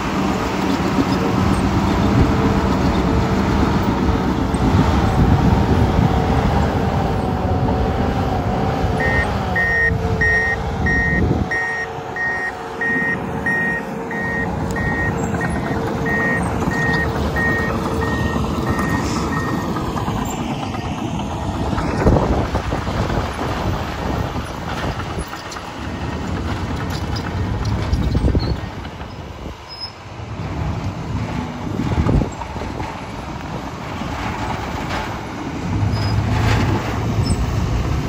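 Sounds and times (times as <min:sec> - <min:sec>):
diesel engine running: 0:00.0 - 0:38.0
backup alarm beeping: 0:09.0 - 0:19.6.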